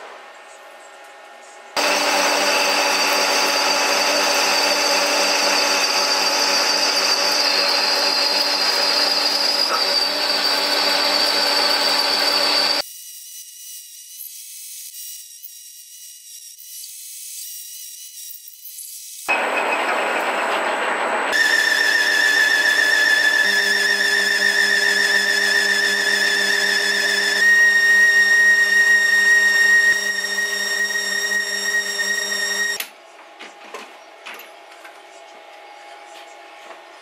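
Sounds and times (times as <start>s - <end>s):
lathe drilling metal whine: 1.8s - 12.8s, 19.3s - 32.8s.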